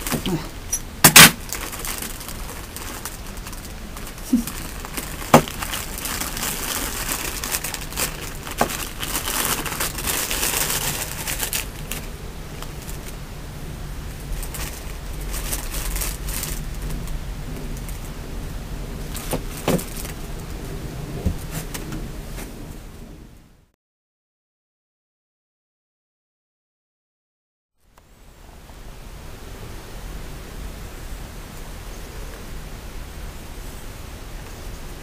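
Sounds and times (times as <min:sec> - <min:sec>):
plastic packaging crinkling: 0:00.0 - 0:13.2, 0:14.0 - 0:18.2, 0:19.0 - 0:20.6.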